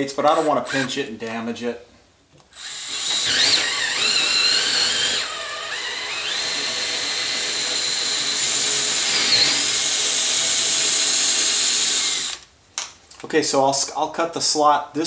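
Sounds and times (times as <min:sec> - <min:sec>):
electric drill boring wood: 0:00.3 - 0:00.9, 0:02.6 - 0:12.4.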